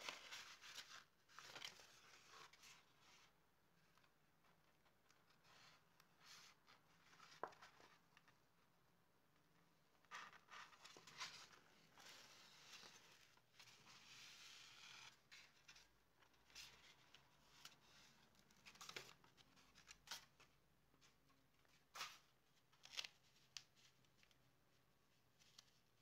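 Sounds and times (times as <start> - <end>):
paper crackles and taps: 7.2 - 8.4.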